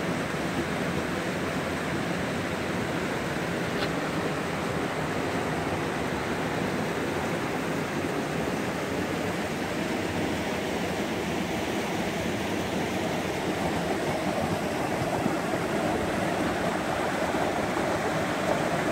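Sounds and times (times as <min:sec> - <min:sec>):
creek rushing over rocks: 0:00.1 - 0:18.9.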